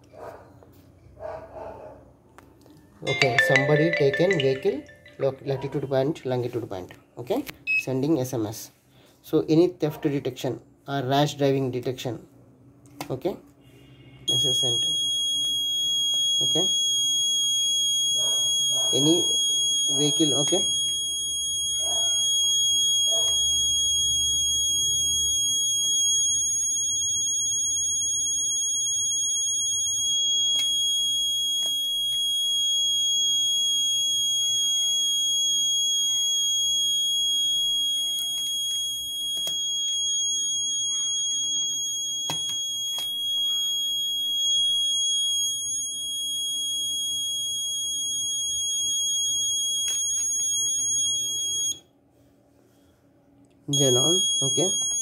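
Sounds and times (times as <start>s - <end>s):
piezo buzzer alarm tone: 13.6s - 51.9s, 53.7s - 55.0s.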